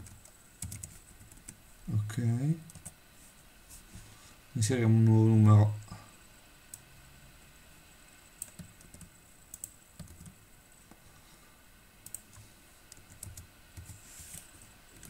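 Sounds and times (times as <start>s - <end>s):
keyboard typing: 0.0s - 1.6s, 8.4s - 10.4s, 12.0s - 15.0s.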